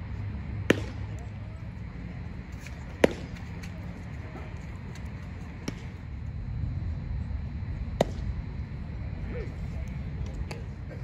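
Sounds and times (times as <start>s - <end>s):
low outdoor rumble: 0.0s - 11.0s
baseball smacking into mitt: 0.6s - 1.1s, 2.6s - 3.5s, 5.6s - 5.9s, 8.0s - 8.3s.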